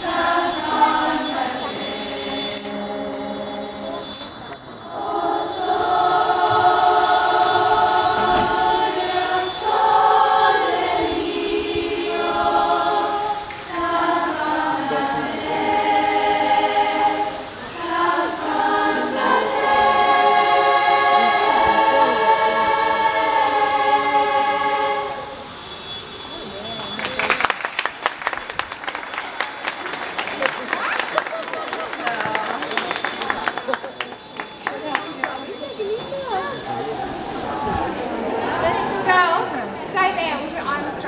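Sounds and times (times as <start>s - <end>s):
women's choir singing a cappella: 0.0s - 25.7s, 36.3s - 41.0s.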